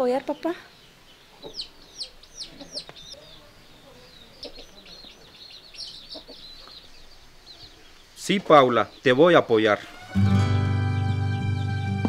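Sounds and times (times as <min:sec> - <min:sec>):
chicks peeping: 0:00.0 - 0:10.2
faint chicken clucks: 0:00.2 - 0:09.0.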